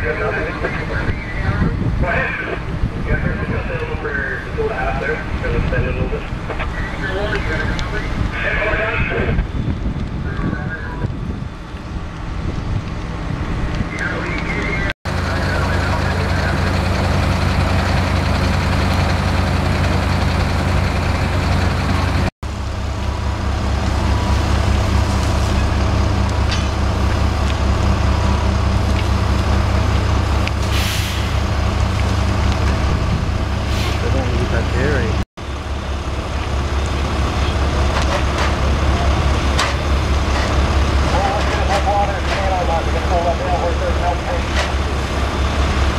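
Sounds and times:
truck engine droning: 0:00.0 - 0:45.9.

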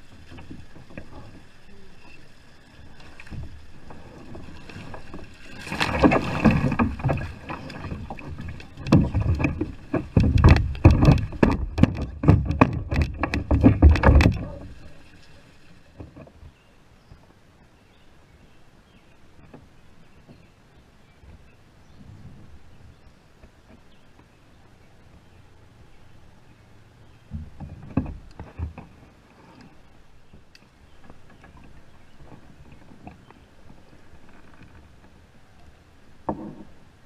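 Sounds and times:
water splashing: 0:00.0 - 0:16.3
fish thrashing against plastic kayak: 0:03.3 - 0:14.9.

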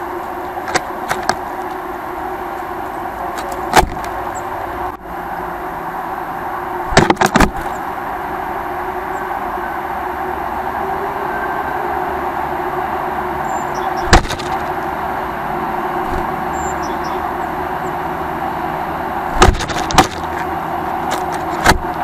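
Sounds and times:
urban background noise: 0:00.0 - 0:22.0
sharp knocks on bird feeder: 0:06.9 - 0:07.7, 0:14.0 - 0:14.7, 0:16.0 - 0:16.3, 0:19.3 - 0:20.4.

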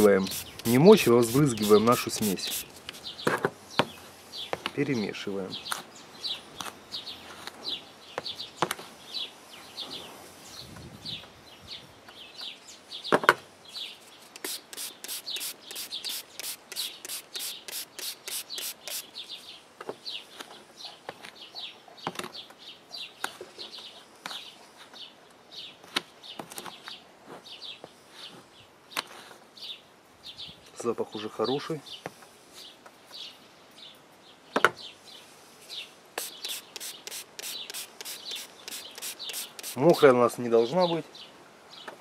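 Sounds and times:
fast high ticking: 0:14.4 - 0:19.1, 0:36.2 - 0:39.8.

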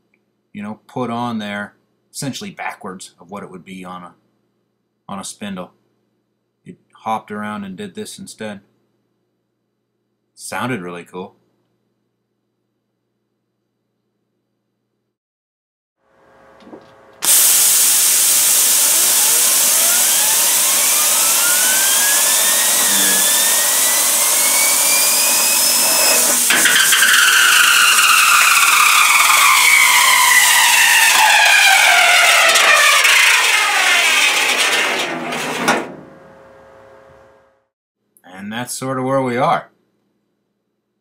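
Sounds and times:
spinning bearing whine: 0:16.3 - 0:37.6
compressed air hissing: 0:17.2 - 0:34.3.

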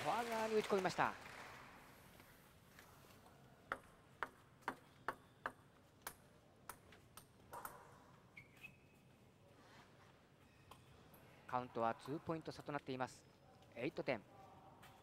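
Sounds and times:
table tennis ball bouncing: 0:03.7 - 0:08.0, 0:11.6 - 0:12.8.

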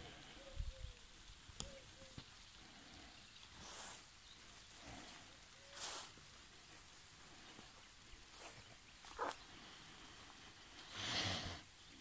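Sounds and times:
steady low hiss: 0:00.0 - 0:12.0
short soft hisses: 0:03.6 - 0:04.1, 0:05.8 - 0:06.2.

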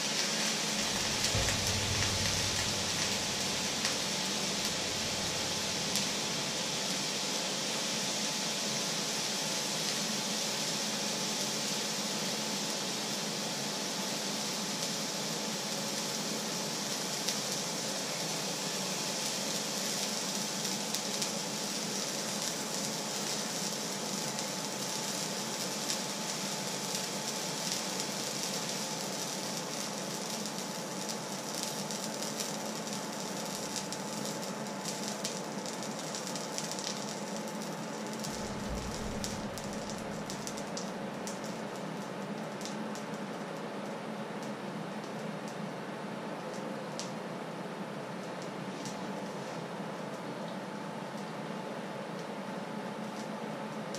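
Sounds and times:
hot frying pan sizzling: 0:00.0 - 0:53.9
steady hum: 0:00.8 - 0:06.6, 0:38.0 - 0:40.8.

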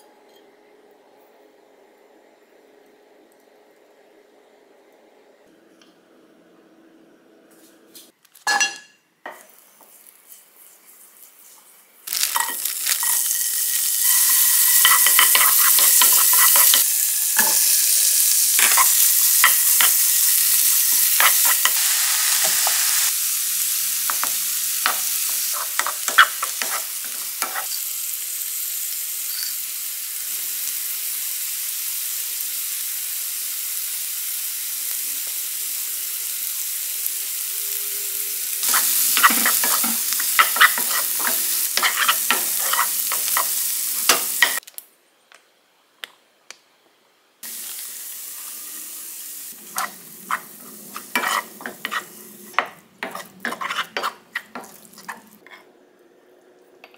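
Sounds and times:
food sizzling in a frying pan: 0:09.3 - 0:44.7, 0:47.4 - 0:55.5
wooden spoon scraping a pan: 0:14.2 - 0:16.8, 0:25.4 - 0:27.7, 0:38.6 - 0:43.6, 0:49.7 - 0:52.2, 0:53.0 - 0:55.6.

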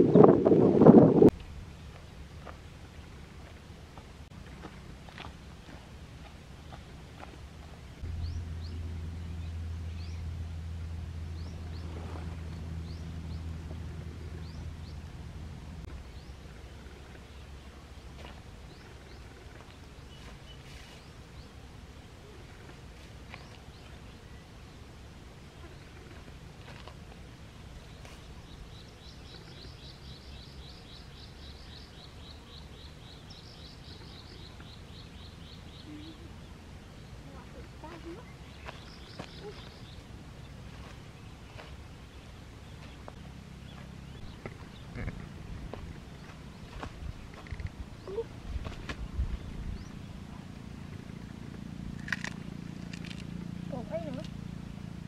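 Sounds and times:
steady low drone: 0:00.0 - 0:55.0
steady low rumble: 0:00.0 - 0:55.0
bird chirping: 0:08.0 - 0:10.3, 0:27.8 - 0:45.3.

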